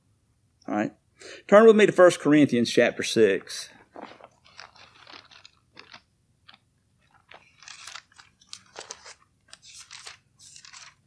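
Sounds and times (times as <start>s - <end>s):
paper pages rustling: 3.8s - 11.0s.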